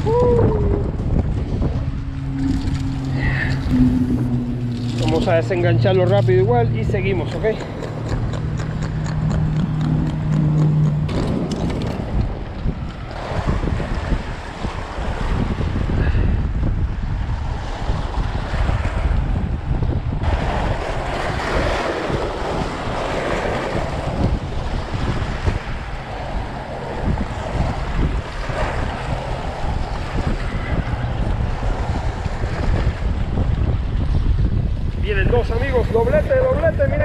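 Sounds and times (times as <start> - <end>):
low steady hum: 0.0 - 13.1
wind buffeting microphone: 0.0 - 37.0.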